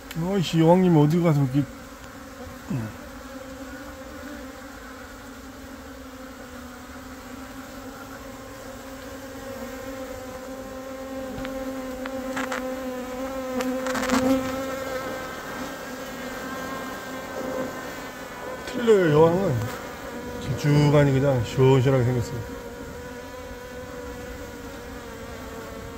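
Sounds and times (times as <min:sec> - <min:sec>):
bees buzzing: 0:00.0 - 0:25.9.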